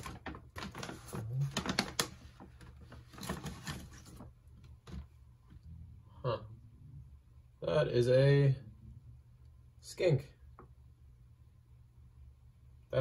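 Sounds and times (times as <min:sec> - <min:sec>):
paper bag crinkling: 0:00.0 - 0:05.0.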